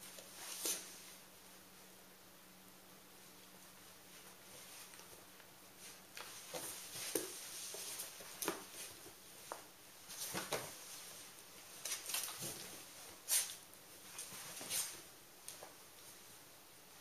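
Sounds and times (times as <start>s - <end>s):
fabric bed rustling and scraping: 5.8s - 15.1s.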